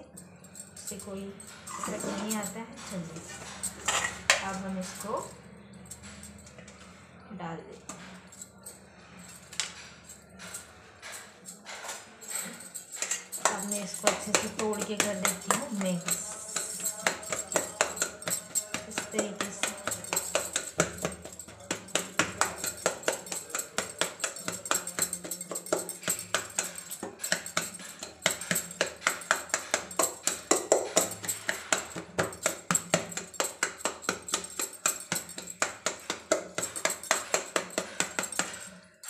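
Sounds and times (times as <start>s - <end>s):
bangles jingling and clicking: 0.0s - 7.2s, 7.8s - 39.0s
eggplant being mashed: 13.4s - 38.5s.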